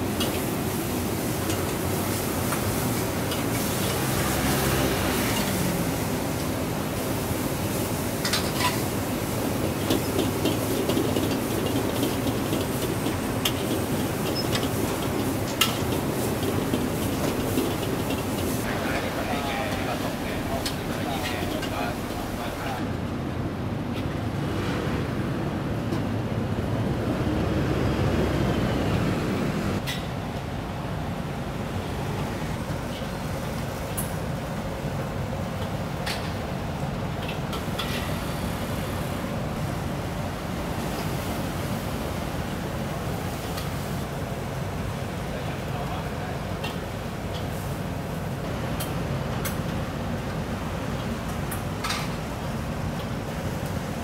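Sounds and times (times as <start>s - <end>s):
food sizzling in a wok: 0.0s - 22.8s
gas burner rushing: 0.0s - 22.8s
gas burner roaring: 0.0s - 54.0s.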